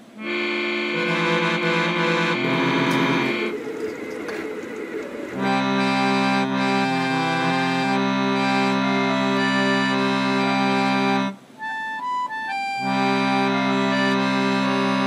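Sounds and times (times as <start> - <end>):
music of long held chords: 0.0 - 15.0
single higher notes: 0.2 - 11.4.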